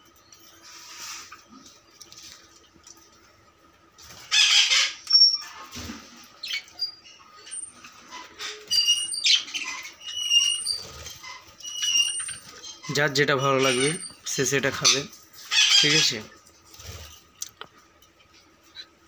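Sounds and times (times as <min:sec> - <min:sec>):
wings fluttering: 0:00.6 - 0:03.3, 0:04.0 - 0:17.4
parakeets squeaking and chirping: 0:04.1 - 0:05.8, 0:06.4 - 0:17.2.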